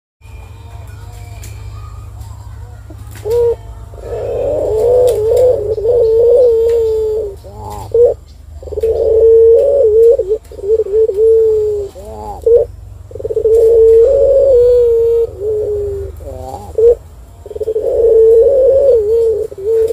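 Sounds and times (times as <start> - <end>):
dove cooing: 2.6 - 19.9.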